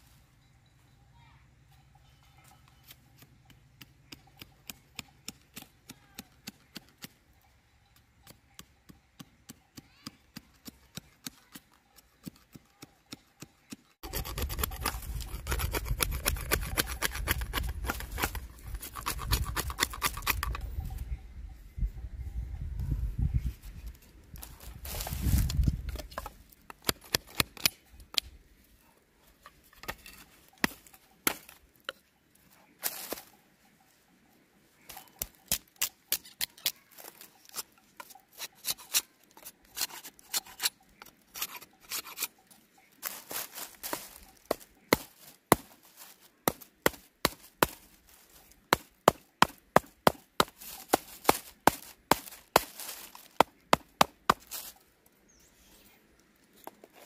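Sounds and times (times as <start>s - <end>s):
knife shaving wooden stick: 9.8s - 20.6s, 34.9s - 42.4s, 43.0s - 54.8s.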